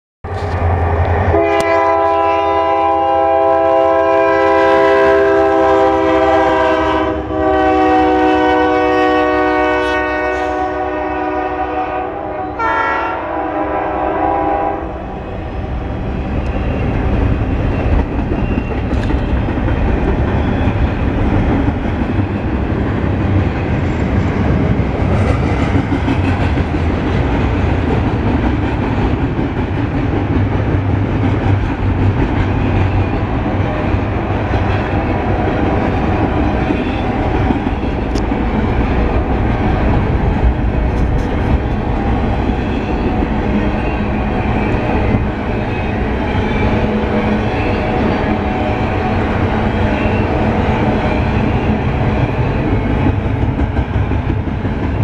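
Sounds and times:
locomotive air horn blasts: 1.3 - 15.0
freight cars rumbling: 15.0 - 55.0.

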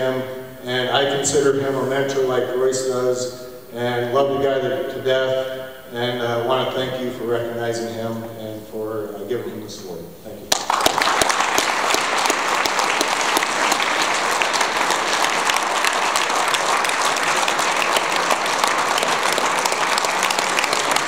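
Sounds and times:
audience applauding: 10.5 - 21.0.

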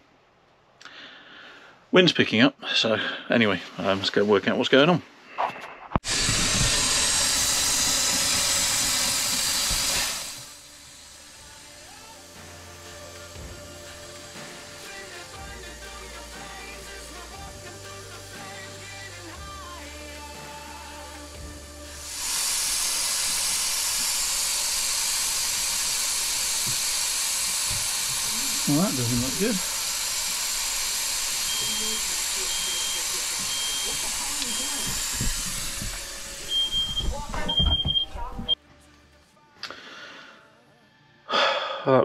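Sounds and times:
steam hissing loudly: 6.0 - 37.6.

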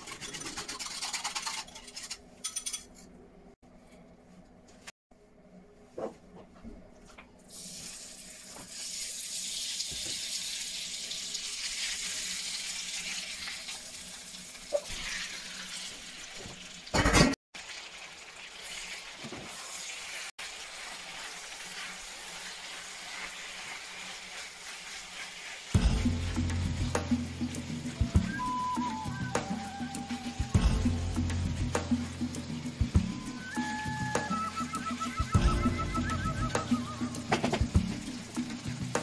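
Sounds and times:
beef sizzling in oil: 7.5 - 17.0, 17.6 - 39.0.

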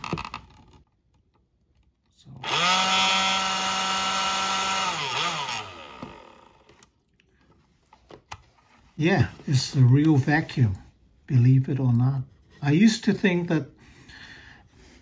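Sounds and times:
vacuum fan motor whine: 2.4 - 6.9.

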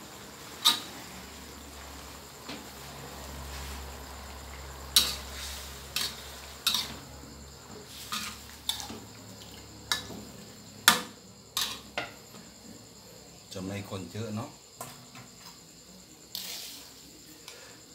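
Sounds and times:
faint sizzle: 0.0 - 17.9
metal spatula scraping a wok: 0.4 - 2.1, 2.7 - 7.1, 7.7 - 9.1, 11.6 - 11.9, 16.3 - 17.0.

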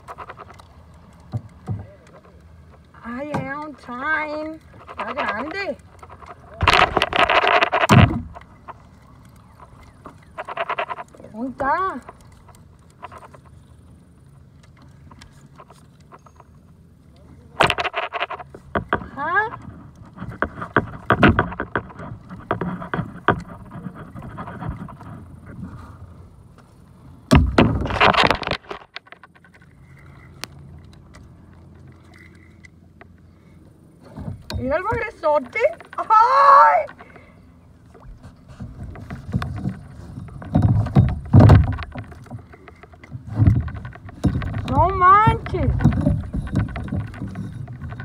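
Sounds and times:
gear knocking on kayak: 38.6 - 48.0.

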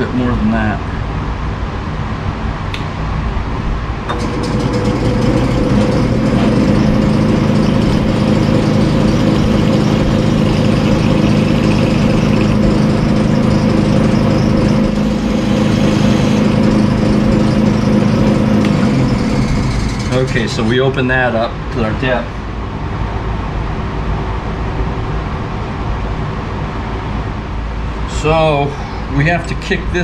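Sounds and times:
metal lathe motor humming: 4.1 - 21.0.

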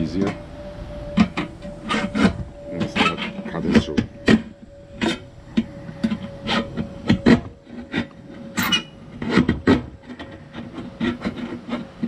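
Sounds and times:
knife sawing through can: 9.1 - 12.0.

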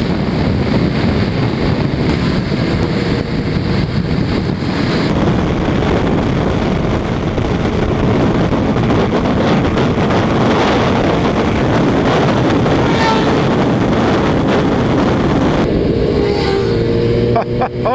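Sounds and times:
motorcycle engine and road noise: 0.0 - 17.9
wind rush: 0.0 - 17.9.

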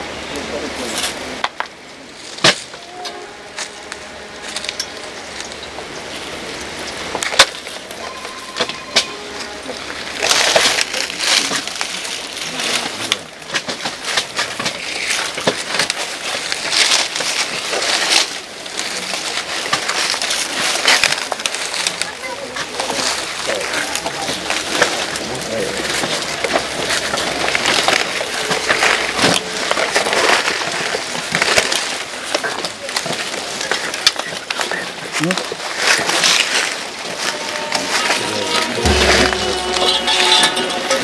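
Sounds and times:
soil scattering and crunching: 9.7 - 38.0
sharp knocks: 38.8 - 41.0.

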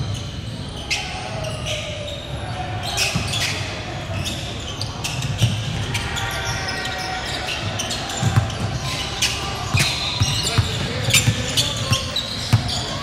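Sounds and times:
basketball bouncing on court: 8.1 - 13.0.

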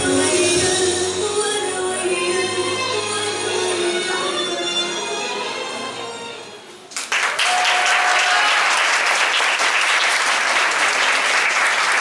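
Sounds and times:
music: 0.0 - 7.1
audience applause: 6.9 - 12.0.

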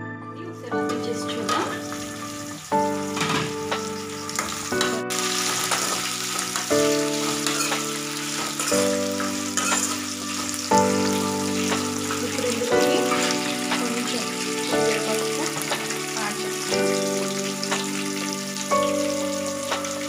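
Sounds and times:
background music chords: 0.0 - 20.0
oil sizzling in a pan: 0.8 - 20.0
ladle scraping and clicking on pan: 7.3 - 10.0.

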